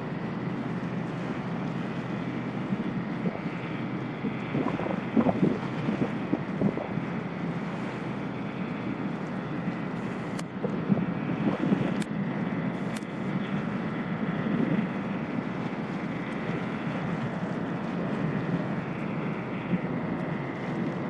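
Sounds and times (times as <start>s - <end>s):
ferry engine drone: 0.0s - 21.0s
rushing boat wash: 0.0s - 21.0s
wind on microphone: 3.0s - 7.8s, 10.0s - 12.1s, 14.2s - 15.0s.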